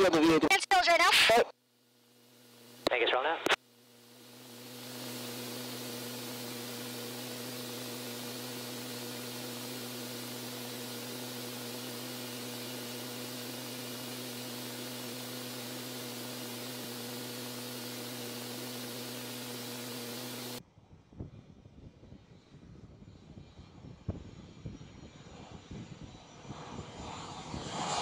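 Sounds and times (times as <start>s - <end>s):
low even hum: 1.7s - 22.0s.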